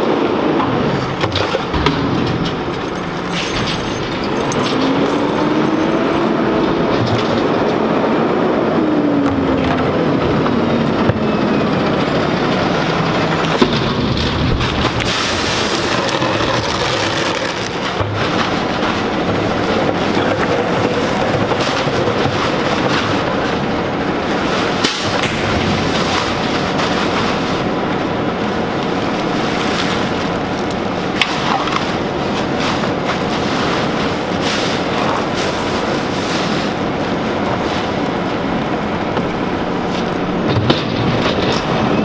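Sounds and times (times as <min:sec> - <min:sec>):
plastic trash bags rustling: 0:24.3 - 0:30.6, 0:31.3 - 0:40.4.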